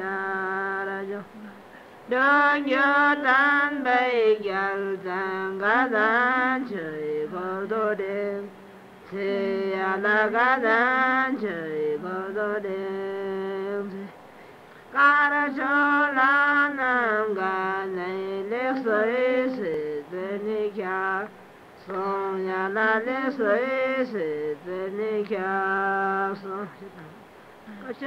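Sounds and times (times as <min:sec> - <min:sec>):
women chanting long held notes: 0:09.1 - 0:10.8.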